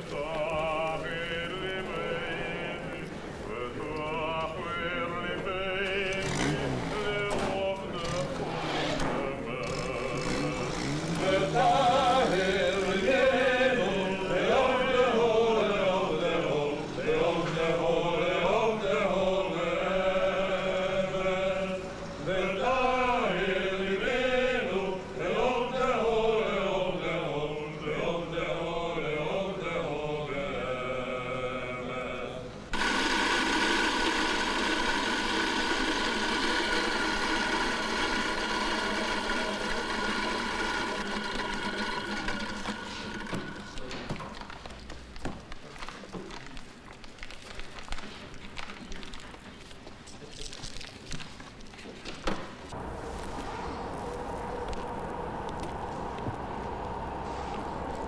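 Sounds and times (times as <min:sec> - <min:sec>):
person singing chant-like melody: 0:00.0 - 0:32.8, 0:52.7 - 0:58.0
electric coffee grinder running: 0:32.8 - 0:44.2.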